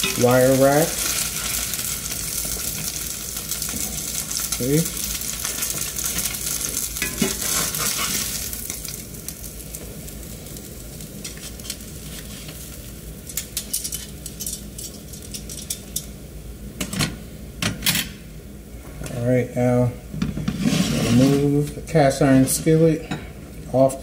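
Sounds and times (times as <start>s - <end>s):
hot oil sizzling in a skillet: 0.0s - 16.6s.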